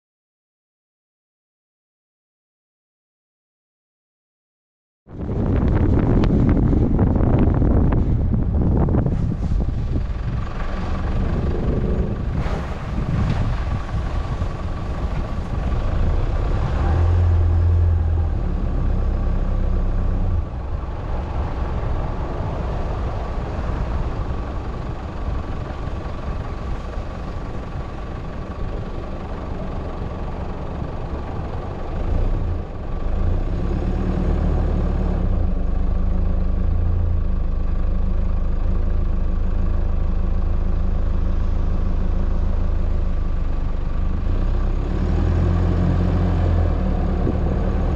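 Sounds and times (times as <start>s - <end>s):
vehicle engine running: 5.1s - 47.9s
tyres rolling over gravel: 9.0s - 17.2s.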